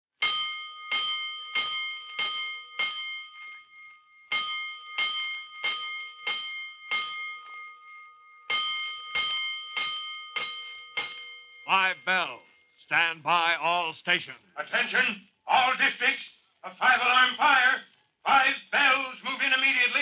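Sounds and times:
fire alarm bell ringing: 0:00.2 - 0:12.8.

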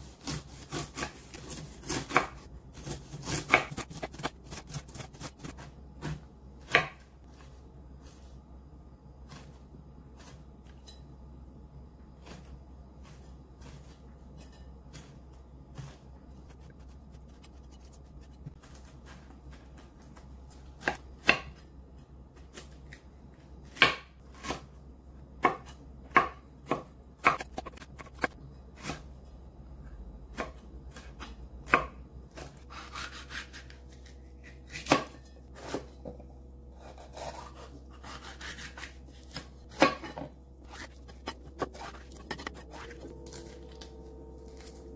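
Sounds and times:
knife scraping cuts: 0:00.0 - 0:06.9, 0:15.8 - 0:19.3, 0:32.6 - 0:36.0, 0:36.8 - 0:43.8
knife slicing fruit: 0:00.0 - 0:07.0, 0:30.4 - 0:36.0, 0:36.8 - 0:44.9.

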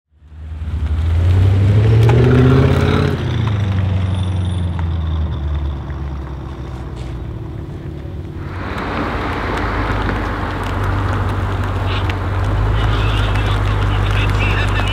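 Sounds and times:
car engine revving loudly: 0:00.5 - 0:04.9, 0:08.2 - 0:14.9.

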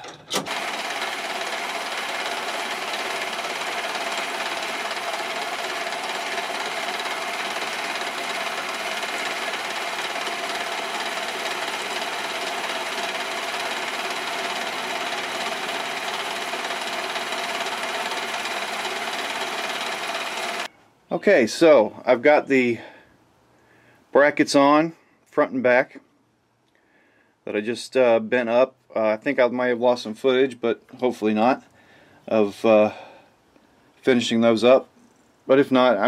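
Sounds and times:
milling machine cutting metal: 0:00.0 - 0:20.7.

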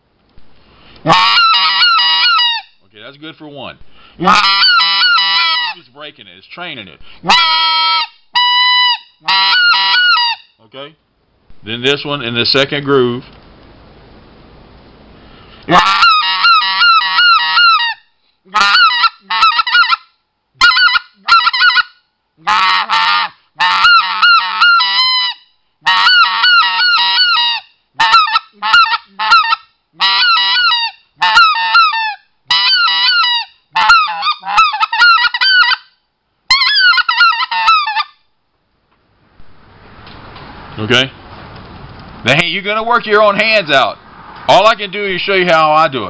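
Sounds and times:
goose call honking: 0:01.0 - 0:02.7, 0:04.2 - 0:05.8, 0:07.2 - 0:10.4, 0:15.7 - 0:20.0, 0:20.6 - 0:35.9, 0:36.5 - 0:38.2.

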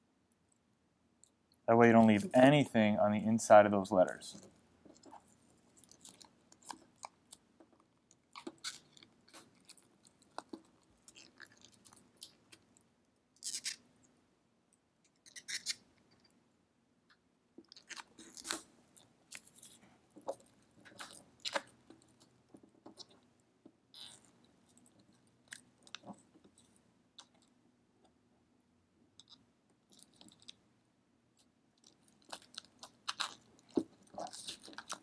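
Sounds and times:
rubber coating peeling and crackling: 0:04.3 - 0:12.8, 0:13.4 - 0:13.9, 0:15.1 - 0:16.3, 0:17.6 - 0:23.3, 0:23.9 - 0:27.6, 0:31.4 - 0:35.0.

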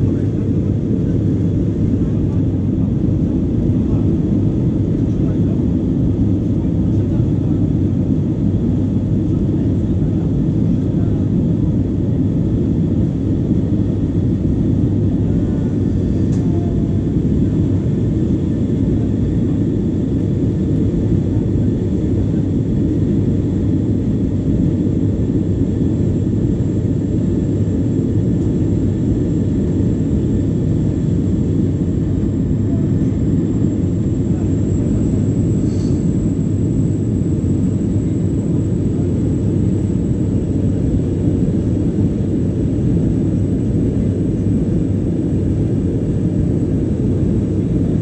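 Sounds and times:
deep jet cabin rumble: 0:00.0 - 0:48.0
faint high whine: 0:31.8 - 0:40.5.

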